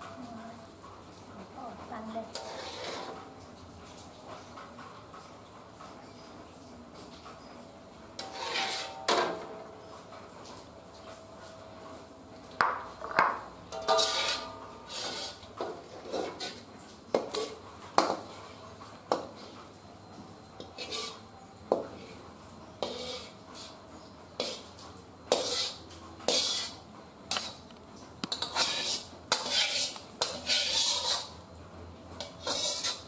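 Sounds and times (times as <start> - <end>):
metal spatula scraping a wok: 2.2 - 3.3, 8.2 - 9.7, 13.7 - 18.4, 20.6 - 22.2, 22.8 - 27.6, 28.3 - 31.5, 32.2 - 33.0.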